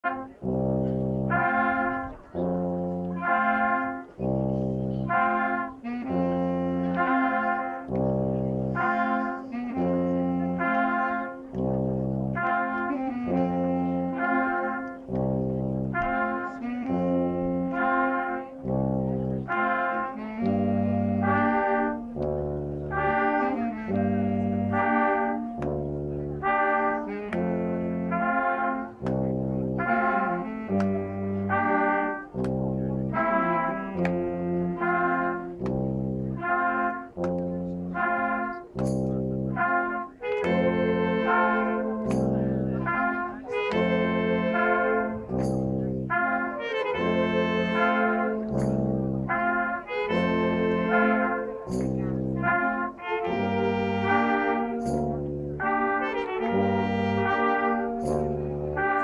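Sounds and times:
concert band playing: 0:00.0 - 0:59.0
tuba bass notes: 0:00.0 - 0:59.0.

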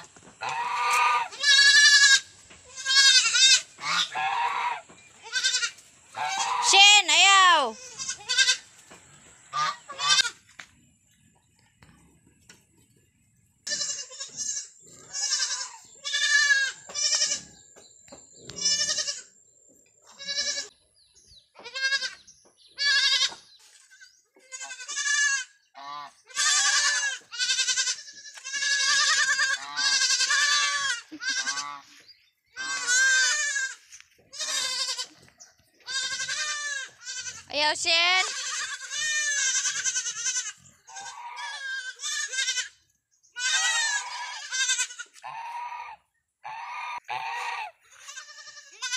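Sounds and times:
goat kids bleating: 0:00.0 - 0:08.8, 0:09.5 - 0:10.5, 0:13.6 - 0:17.6, 0:18.4 - 0:19.4, 0:20.0 - 0:20.8, 0:21.5 - 0:48.9.

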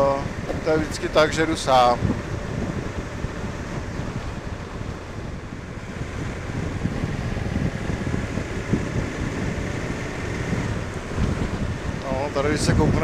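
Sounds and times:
motorcycle engine running: 0:00.0 - 0:13.0
wind buffeting microphone: 0:00.0 - 0:13.0.

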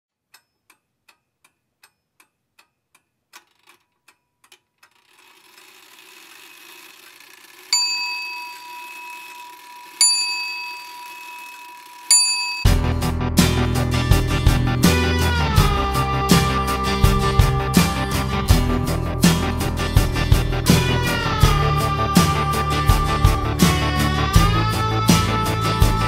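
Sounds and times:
clock ticking: 0:00.2 - 0:07.8.

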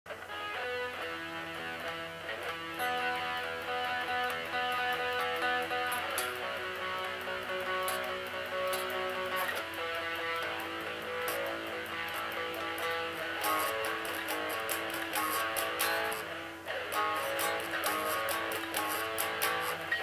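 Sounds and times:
electric guitar chords: 0:00.1 - 0:20.0.

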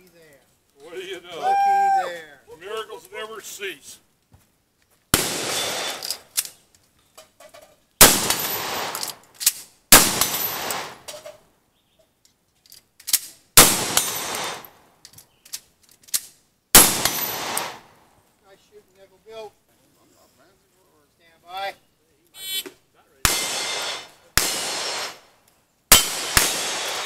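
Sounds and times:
shotgun blasts: 0:05.1 - 0:06.3, 0:08.0 - 0:09.2, 0:09.9 - 0:11.1, 0:13.6 - 0:14.7, 0:16.7 - 0:17.9, 0:23.2 - 0:25.3, 0:25.9 - 0:27.0
gun clicks and knocks: 0:12.2 - 0:13.4, 0:15.0 - 0:16.3.

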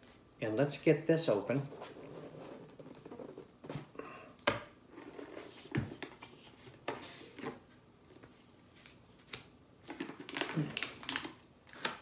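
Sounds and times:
packaging rustling: 0:09.8 - 0:12.0.

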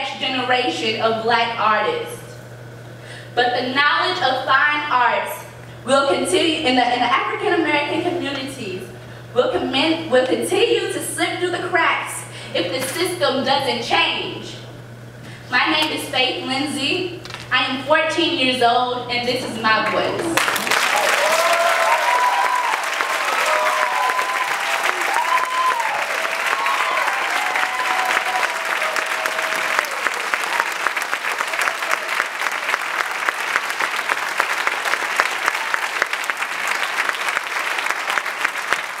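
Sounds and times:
audience applauding: 0:20.4 - 0:39.0
voices cheering: 0:20.5 - 0:38.8.

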